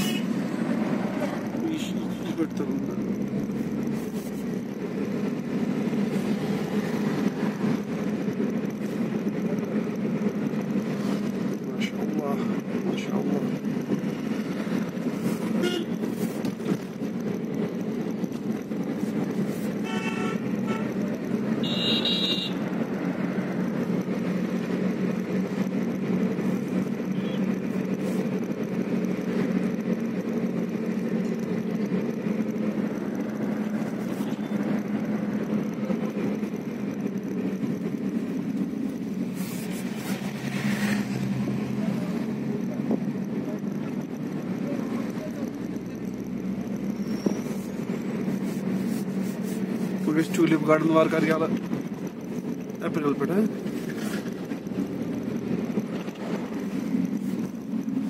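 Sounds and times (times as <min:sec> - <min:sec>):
vehicle horns: 0:00.0 - 0:00.4, 0:15.4 - 0:16.1, 0:19.7 - 0:22.7
car engine and road noise: 0:00.0 - 0:58.0.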